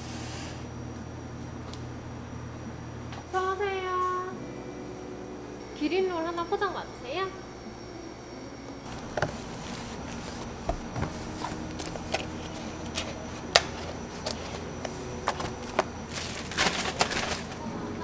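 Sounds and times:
rustling: 0:08.9 - 0:17.7.

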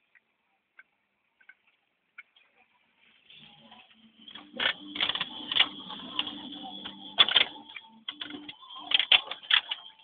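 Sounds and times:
low hum: 0:03.2 - 0:10.0.

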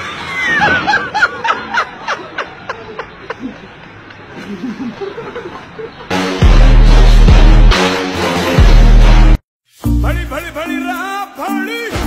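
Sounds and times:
person laughing: 0:04.4 - 0:06.1.

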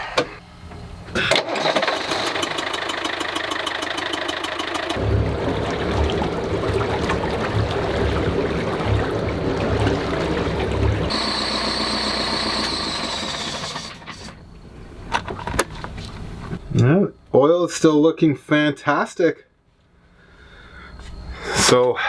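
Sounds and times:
boat engine throbbing: 0:01.7 - 0:14.4.

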